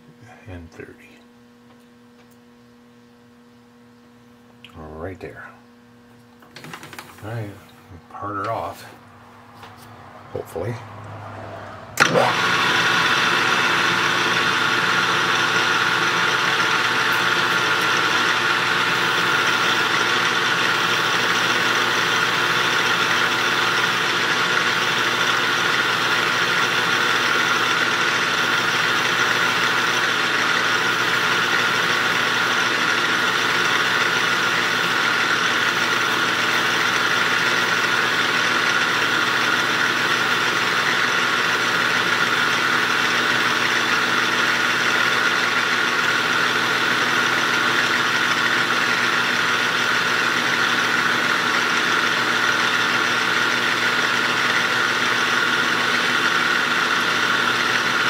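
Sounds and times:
metal lathe running: 12.0 - 58.0.

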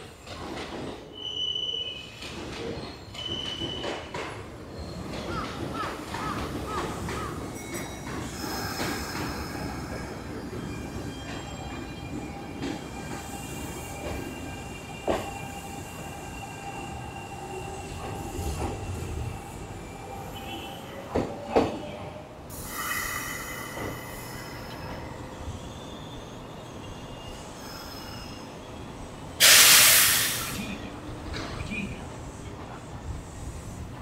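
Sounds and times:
train wheels squealing: 0.1 - 21.9, 22.5 - 31.5
clacks over rail joints: 2.2 - 11.9, 31.2 - 31.8
hissing air burst: 29.4 - 30.7.

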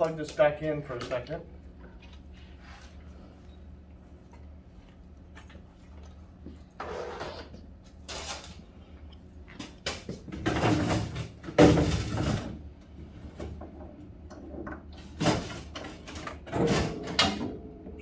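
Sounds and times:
steady low hum: 0.0 - 18.0
refrigerator parts knocking and scraping: 9.6 - 18.0.

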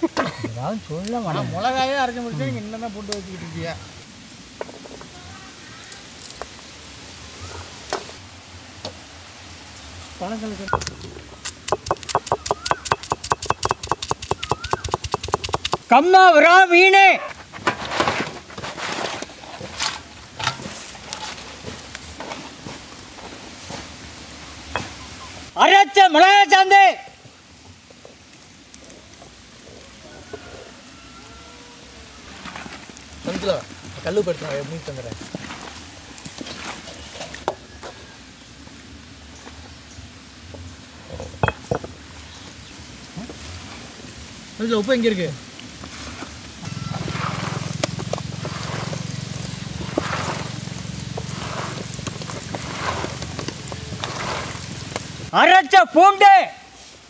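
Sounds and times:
hands squelching fish paste: 47.0 - 55.1.

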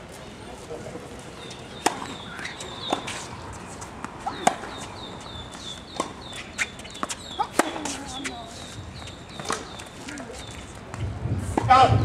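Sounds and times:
tennis ball struck by rackets: 1.8 - 3.3, 4.0 - 4.9, 5.9 - 8.3, 9.3 - 9.8.

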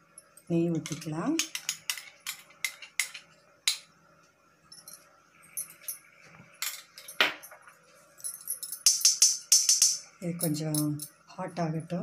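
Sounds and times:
utensils clinking against iron pan: 0.8 - 3.8, 8.4 - 11.1.

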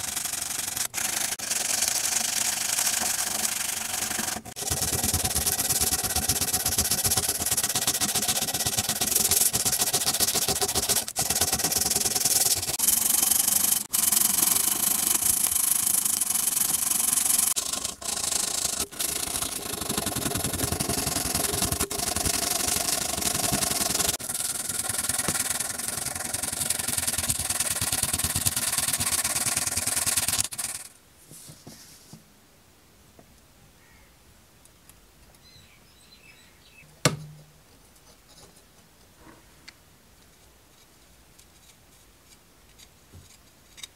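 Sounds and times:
sandpaper scraping metal: 0.0 - 30.9.

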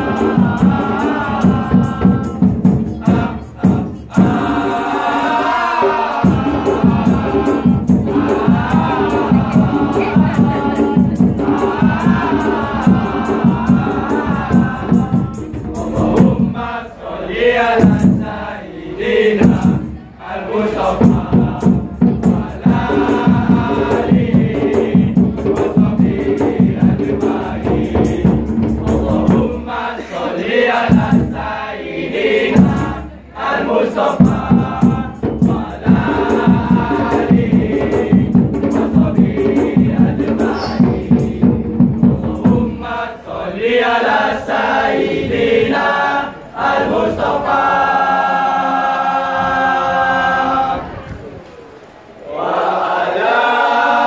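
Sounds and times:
frame drums beating: 0.0 - 16.8, 17.7 - 18.5, 19.4 - 20.0, 20.8 - 30.0, 30.8 - 31.5, 32.4 - 33.2, 33.9 - 43.0
boys singing in chorus: 0.0 - 51.3, 52.2 - 54.0.

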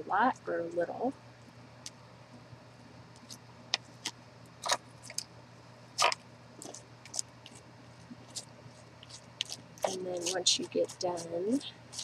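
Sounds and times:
plastic fork scraping gel on paper: 8.2 - 12.0.

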